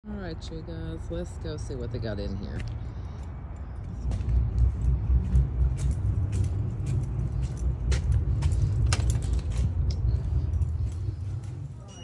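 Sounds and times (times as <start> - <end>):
footsteps on concrete: 2.0 - 11.9.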